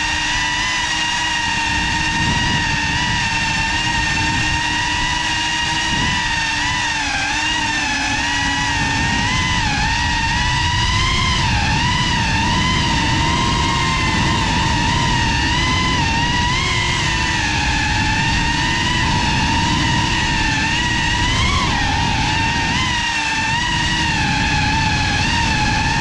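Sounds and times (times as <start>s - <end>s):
drone propellers whining: 0.0s - 26.0s
wind rush on microphone: 0.0s - 26.0s.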